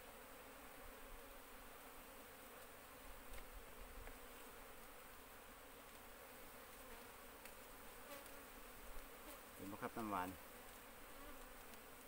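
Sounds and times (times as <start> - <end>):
bees buzzing: 0.0 - 12.0
faint clicks: 10.7 - 12.0.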